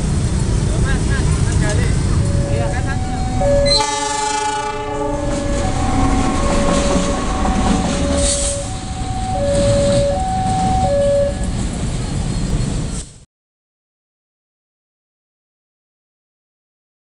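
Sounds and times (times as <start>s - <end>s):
locomotive engine rumbling: 0.0s - 13.2s
train wheels clacking on rails: 0.1s - 13.2s
two-tone crossing alarm chime: 2.2s - 11.6s
locomotive horn blast: 2.3s - 11.5s.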